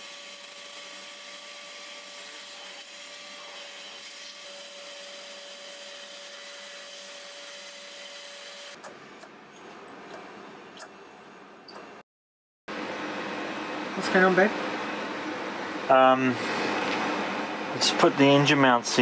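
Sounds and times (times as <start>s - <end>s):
vacuum cleaner whining: 0.0s - 8.8s.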